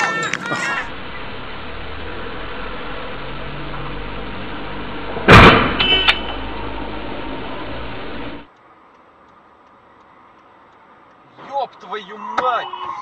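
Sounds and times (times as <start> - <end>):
loud bang: 5.2 - 6.4.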